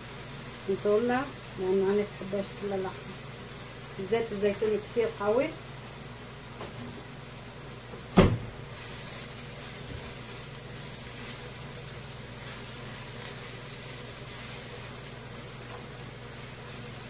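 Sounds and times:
spatula stirring in frying pan: 8.6 - 17.0.

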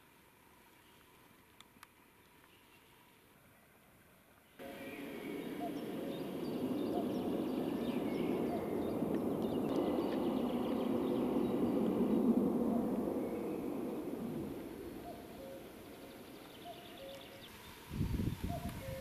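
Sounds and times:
small birds chirping: 0.6 - 19.0
steady rushing drone: 4.6 - 17.1.

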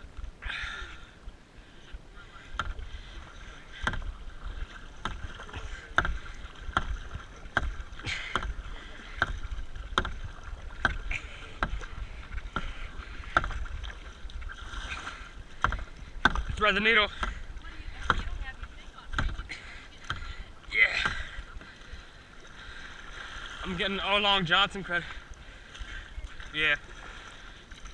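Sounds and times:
paddle stroking through water: 0.0 - 27.9
wind rumble on microphone: 1.9 - 19.5
paddle knocking: 2.3 - 27.9.

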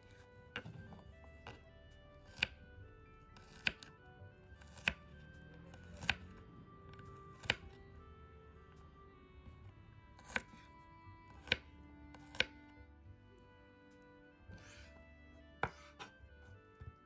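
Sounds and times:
knife chopping on wooden board: 0.1 - 1.6, 2.2 - 2.6, 3.4 - 3.9, 4.6 - 5.1, 5.8 - 7.8, 10.2 - 10.7, 11.3 - 12.7, 14.5 - 15.0, 15.6 - 16.2.

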